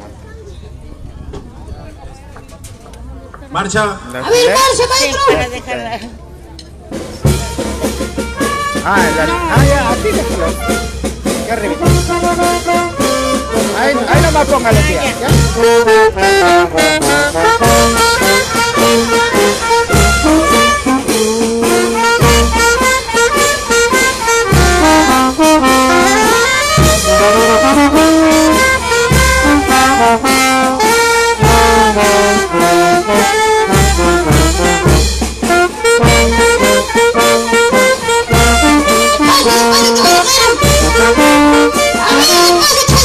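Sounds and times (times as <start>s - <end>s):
steady drum beat: 4.2s - 43.0s
brass melody: 7.0s - 43.0s.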